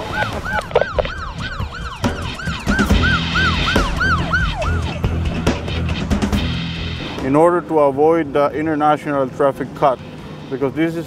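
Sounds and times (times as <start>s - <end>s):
police siren yelping: 0.0s - 5.8s.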